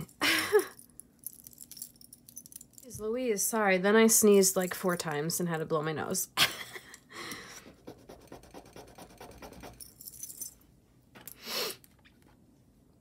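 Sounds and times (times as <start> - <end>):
jewelry clinking: 0.0 - 3.0, 9.7 - 10.6.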